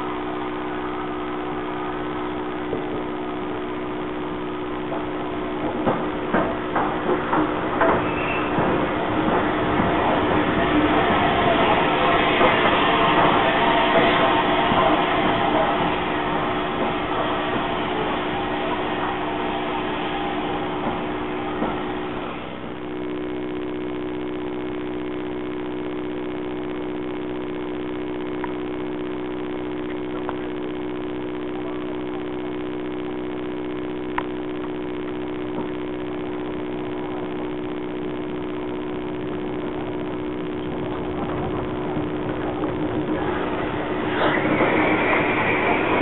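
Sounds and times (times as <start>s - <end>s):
steady mechanical hum: 0.0s - 46.0s
steam locomotive rushing past: 6.3s - 22.6s, 41.0s - 46.0s.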